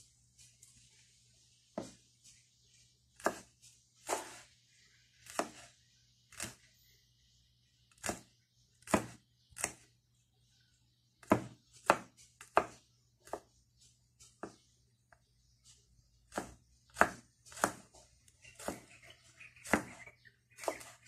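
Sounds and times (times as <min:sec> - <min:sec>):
knife chopping on wooden board: 0:01.8 - 0:02.0, 0:03.2 - 0:04.4, 0:05.2 - 0:05.7, 0:08.0 - 0:09.8, 0:11.2 - 0:13.5, 0:14.4 - 0:14.6, 0:16.3 - 0:18.0, 0:18.6 - 0:18.9, 0:19.6 - 0:20.0, 0:20.6 - 0:21.0.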